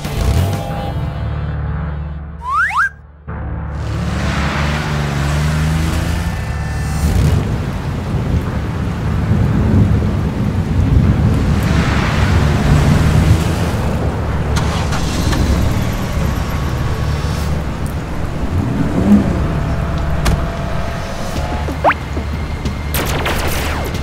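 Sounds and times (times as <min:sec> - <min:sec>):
truck engine deep rumble: 0:03.3 - 0:24.0
rain: 0:03.8 - 0:24.0
thunder: 0:07.2 - 0:24.0.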